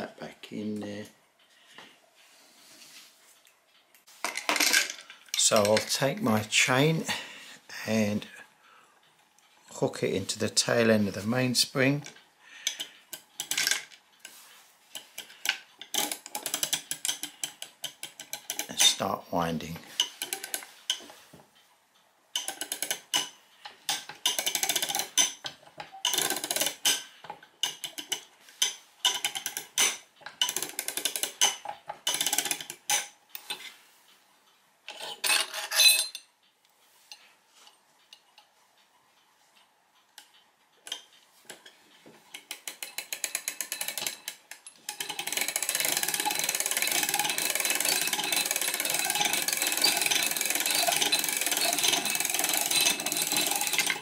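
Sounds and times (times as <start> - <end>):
ratchet clicking: 12.0 - 19.0, 19.9 - 21.1, 22.3 - 33.6, 42.3 - 54.0.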